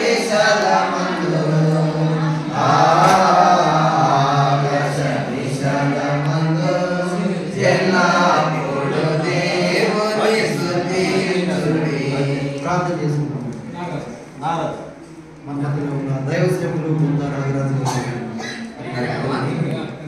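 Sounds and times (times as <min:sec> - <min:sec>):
group of voices singing: 0:00.0 - 0:13.3.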